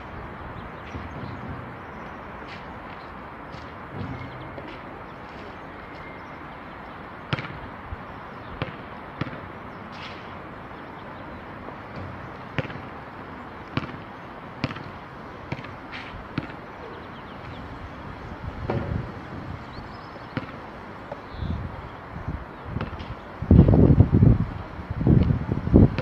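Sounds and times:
basketball bouncing: 7.3 - 7.7, 8.6 - 9.5, 11.9 - 13.0, 13.8 - 15.8, 16.4 - 16.6, 20.3 - 21.2.

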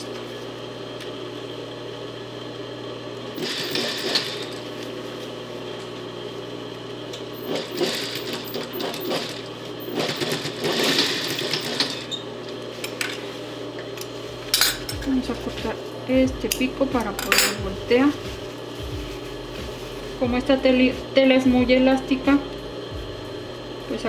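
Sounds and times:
sewing machine stitching: 3.4 - 4.6, 7.4 - 12.1
steady low hum: 12.5 - 24.0.

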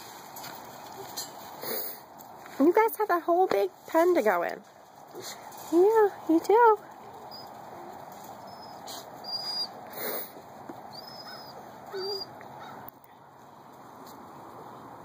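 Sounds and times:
puppies whimpering: 7.0 - 10.3, 10.9 - 12.8.

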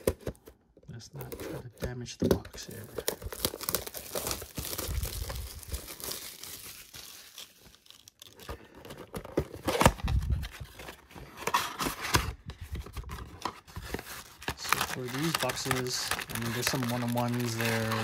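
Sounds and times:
plastic shrink wrap crinkling: 2.6 - 8.6, 13.7 - 18.0.

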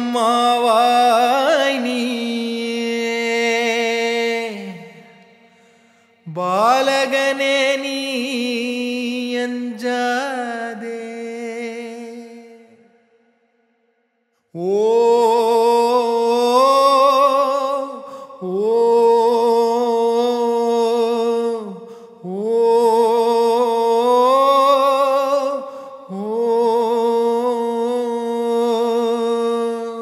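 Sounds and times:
man singing long notes: 0.0 - 5.2.

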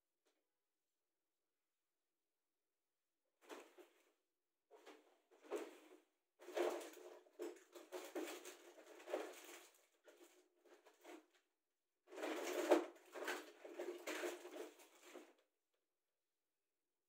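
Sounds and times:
faint rustling and rummaging: 4.7 - 11.5, 12.1 - 15.4.

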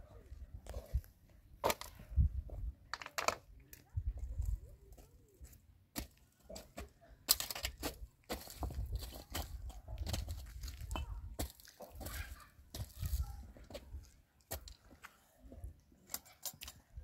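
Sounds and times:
wind rumble on microphone: 2.0 - 2.8
footsteps crunching on gravel: 7.4 - 15.2.

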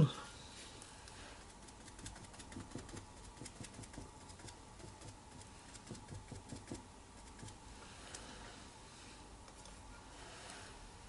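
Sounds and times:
paintbrush dabbing on paper: 1.4 - 7.6.

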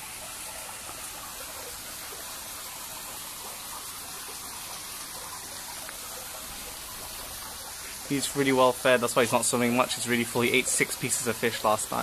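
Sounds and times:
running water in a pond: 0.0 - 12.0.

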